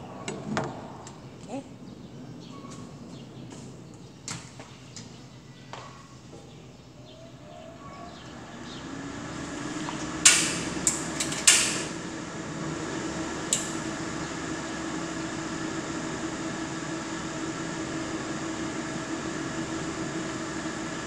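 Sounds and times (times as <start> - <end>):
range hood fan humming: 0.0 - 21.0
gas stove igniter clicking: 10.2 - 12.0, 13.5 - 13.8.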